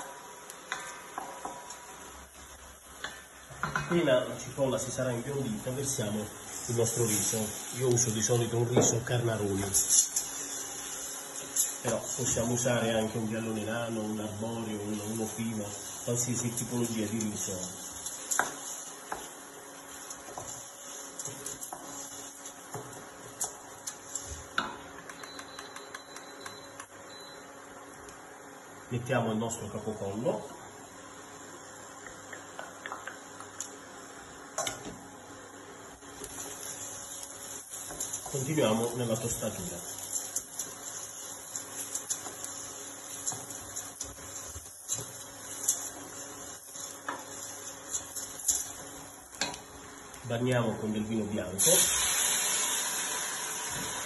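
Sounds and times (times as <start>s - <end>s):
light steady hiss: 0.0s - 54.0s
wooden spoon stirring rice: 5.6s - 24.6s, 36.0s - 49.9s.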